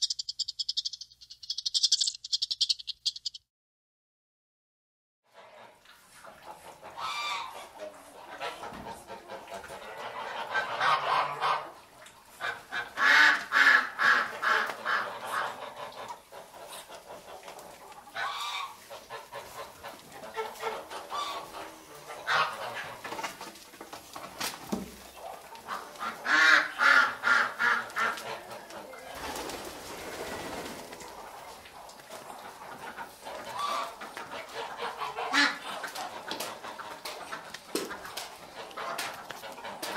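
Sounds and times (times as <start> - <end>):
geese honking: 33.0 - 37.1.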